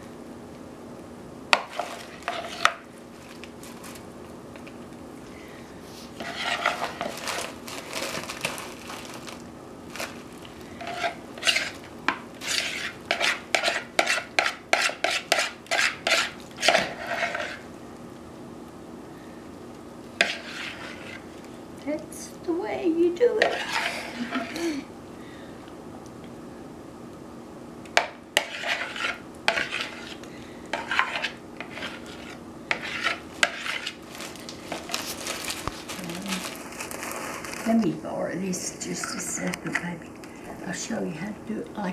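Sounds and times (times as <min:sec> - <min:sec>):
spoon stirring creamy mixture: 0:06.2 - 0:07.4, 0:10.8 - 0:17.6, 0:20.2 - 0:21.5, 0:23.4 - 0:24.5, 0:28.0 - 0:34.0.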